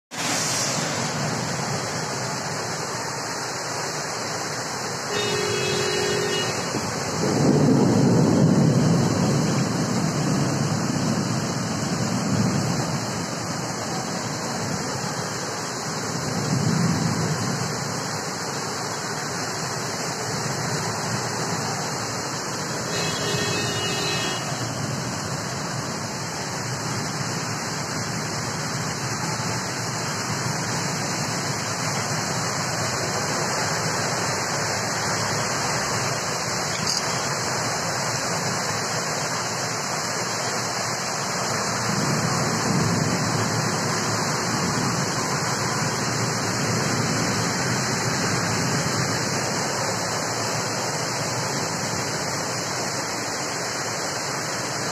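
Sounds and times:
storm rain and wind: 0:00.1 - 0:54.9
short tone: 0:05.1 - 0:06.8.

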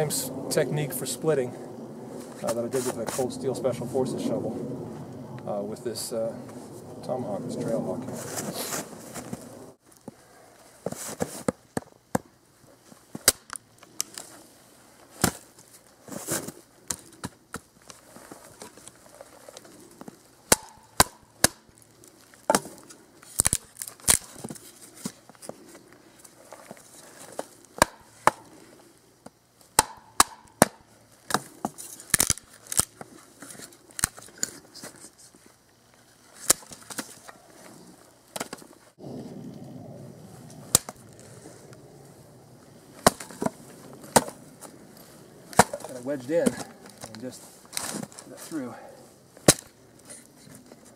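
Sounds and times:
wood splitting off: 0:20.4 - 0:25.2, 0:27.3 - 0:28.5, 0:29.8 - 0:34.5, 0:43.0 - 0:44.7, 0:45.5 - 0:48.2
tomahawk chopping wood: 0:20.5 - 0:21.7, 0:27.8 - 0:28.5, 0:29.8 - 0:32.9, 0:45.5 - 0:46.8.

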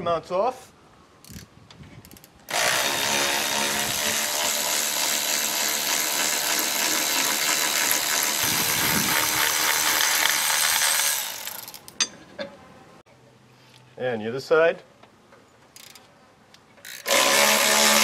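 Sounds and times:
electric ratchet motor whine: 0:02.5 - 0:11.8, 0:16.9 - 0:18.0.

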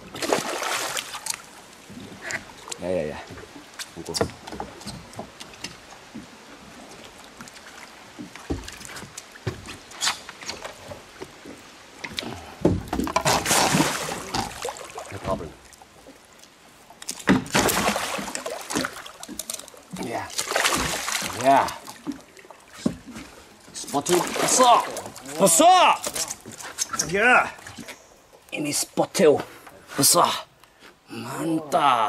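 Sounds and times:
water splashing against boat: 0:00.0 - 0:28.0
fish thrashing at surface: 0:13.0 - 0:15.1, 0:17.4 - 0:19.7, 0:20.3 - 0:22.0, 0:24.1 - 0:25.4.

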